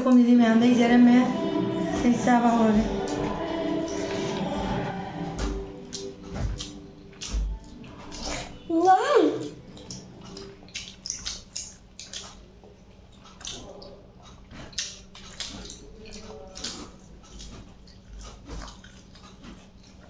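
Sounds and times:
faint steady hum: 0.0s - 20.0s
wet chewing and lip smacks: 5.4s - 8.6s, 9.4s - 20.0s.

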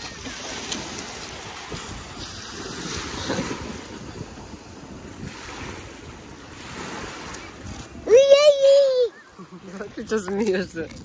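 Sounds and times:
waves washing onto pebbles: 0.0s - 8.8s.

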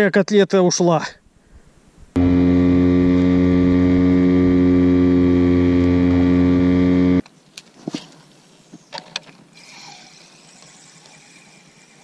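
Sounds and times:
small boat motor running: 2.2s - 7.2s.

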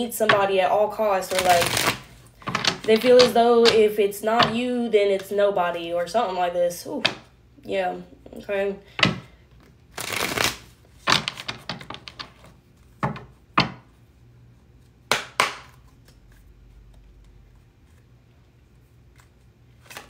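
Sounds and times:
cards shuffling: 1.3s - 3.8s, 9.6s - 12.6s, 19.0s - 20.0s.

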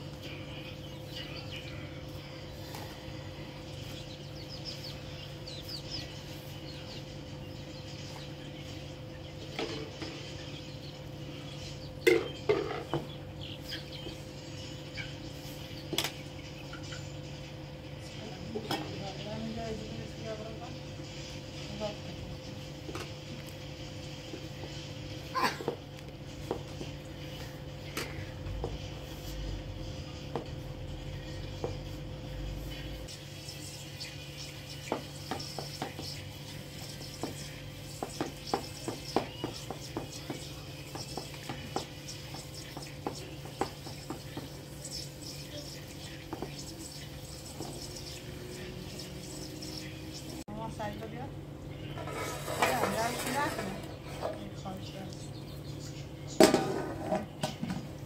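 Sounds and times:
dough knocking and slapping in pot: 34.7s - 48.3s.

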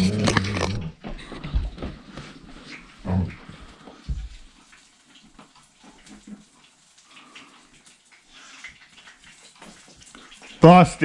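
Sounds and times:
fish frying in hot oil: 2.4s - 11.0s.

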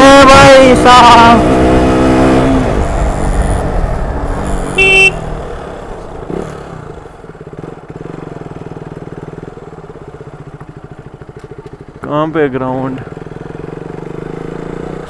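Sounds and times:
motorcycle engine: 0.0s - 15.0s
motorcycle horn beep: 4.8s - 5.3s.

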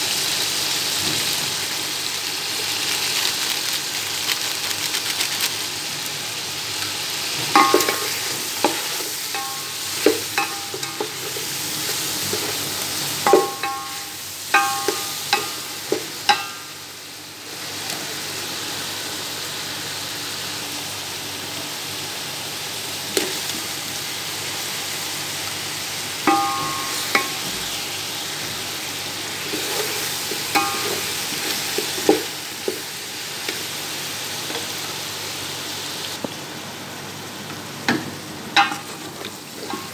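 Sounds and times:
chicken sizzling in hot oil: 0.0s - 39.9s
metal spoon clanking against pot: 7.5s - 11.5s, 13.2s - 16.7s, 26.3s - 27.6s, 30.5s - 31.2s, 39.6s - 39.9s.

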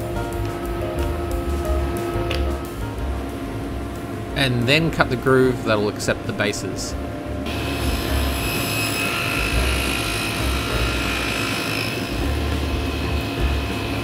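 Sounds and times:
table saw whining: 0.0s - 14.0s
saw cutting wooden panel: 7.4s - 14.0s.

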